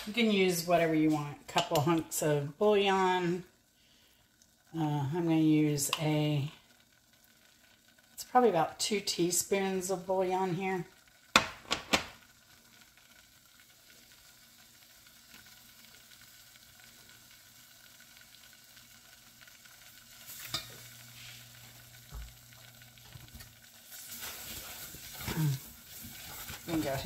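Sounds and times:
roux sizzling in a saucepan: 0:00.0 - 0:27.0
whisk knocking and scraping: 0:24.2 - 0:27.0.

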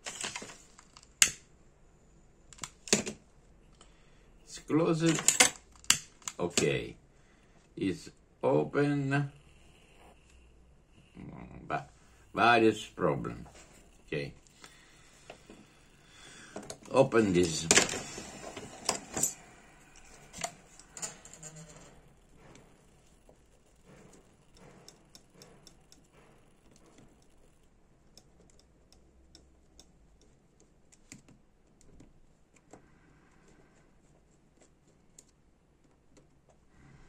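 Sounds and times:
screwdriver clicking on metal: 0:05.0 - 0:06.7.

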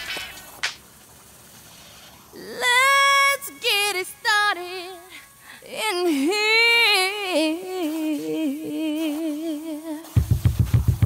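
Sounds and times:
person singing unaccompanied: 0:02.4 - 0:11.0.

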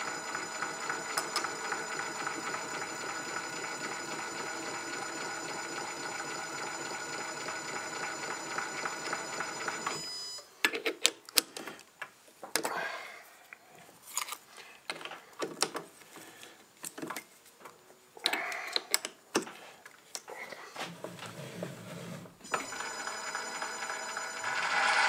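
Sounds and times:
metal lathe hum and whine: 0:24.4 - 0:25.0.

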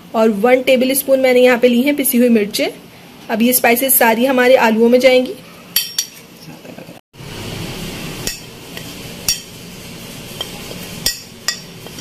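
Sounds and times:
spoon scraping a plate: 0:08.2 - 0:09.6, 0:10.3 - 0:12.0
spoon clinking on glass bowl: 0:10.4 - 0:12.0.

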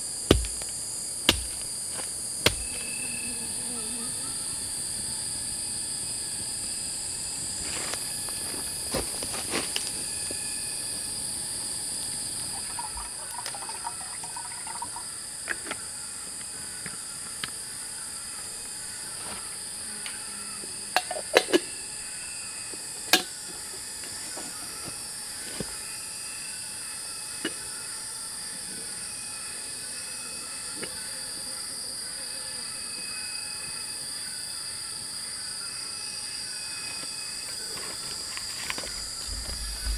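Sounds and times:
insects droning: 0:00.0 - 0:39.9
sharp knocks: 0:00.3 - 0:00.7.

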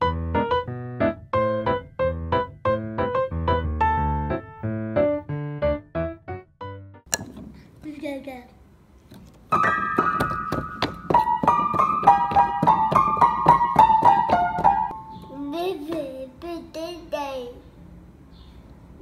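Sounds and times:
piano notes and chords: 0:00.0 - 0:07.2, 0:09.5 - 0:15.6
child singing and babbling: 0:15.3 - 0:17.7.

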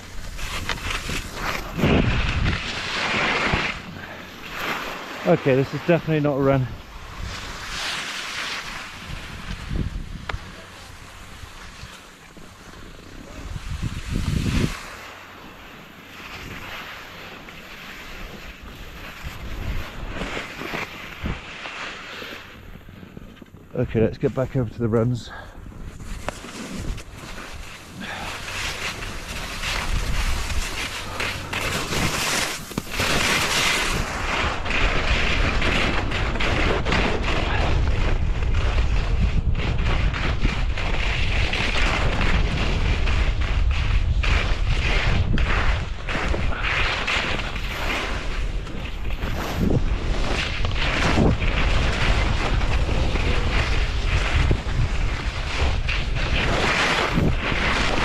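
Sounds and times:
wind buffeting microphone: 0:00.0 - 0:03.0, 0:08.9 - 0:11.5, 0:13.2 - 0:15.0, 0:25.6 - 0:58.0
skis scraping over snow: 0:00.0 - 0:58.0.

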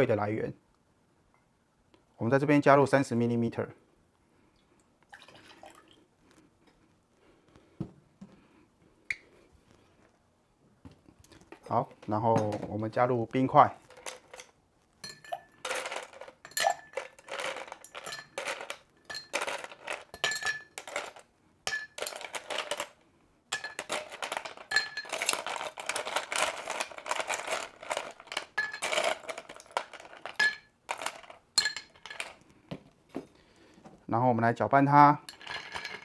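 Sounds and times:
ice cubes clinking in glass: 0:13.8 - 0:32.4, 0:35.3 - 0:36.0.

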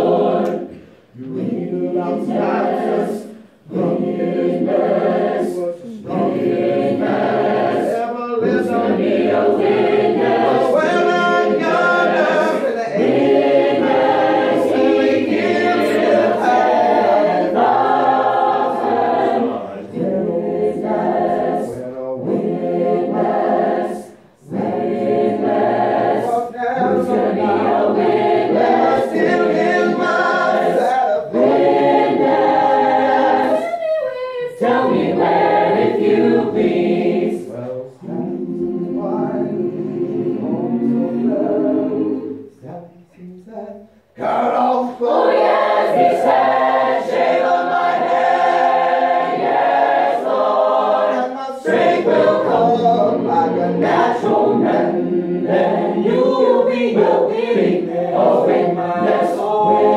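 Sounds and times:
choir singing: 0:00.0 - 0:43.1, 0:43.8 - 0:59.9.

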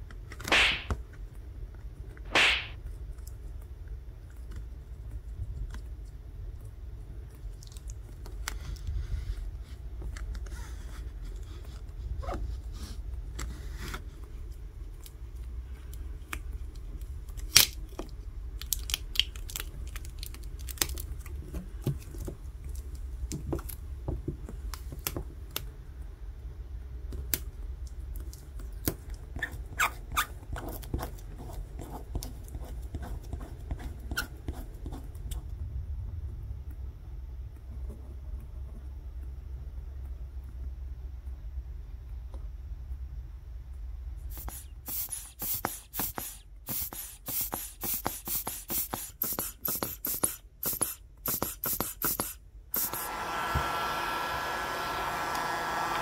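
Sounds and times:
steady low hum: 0:30.4 - 0:51.6.

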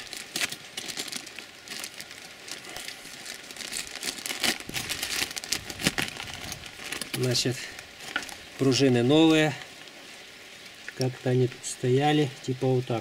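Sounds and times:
plastic bag crinkling: 0:00.0 - 0:09.9.

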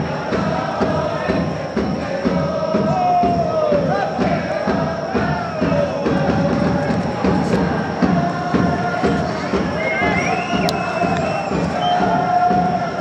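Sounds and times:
football supporters chanting: 0:00.0 - 0:13.0
steady drumbeat: 0:00.0 - 0:13.0.

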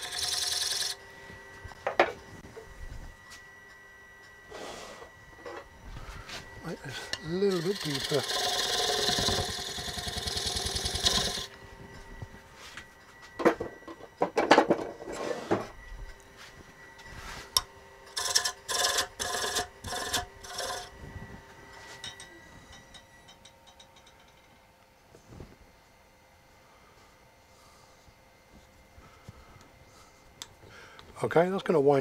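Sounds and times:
lathe tool cutting wood: 0:00.0 - 0:01.0, 0:06.9 - 0:11.5, 0:18.1 - 0:20.9
faint lathe whine: 0:00.0 - 0:32.0
wooden scraping strokes: 0:06.0 - 0:11.4, 0:16.4 - 0:17.6.

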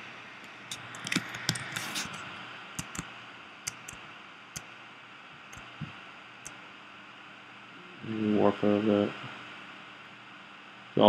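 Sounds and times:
keyboard and mouse clicks: 0:00.7 - 0:02.2, 0:02.8 - 0:03.1, 0:03.7 - 0:04.0.

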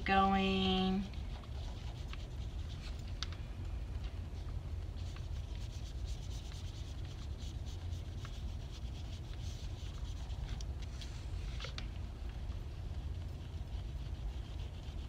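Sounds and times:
colouring strokes scratching paper: 0:00.0 - 0:03.2, 0:04.9 - 0:11.4, 0:12.9 - 0:15.0
steady low hum: 0:00.0 - 0:15.0.

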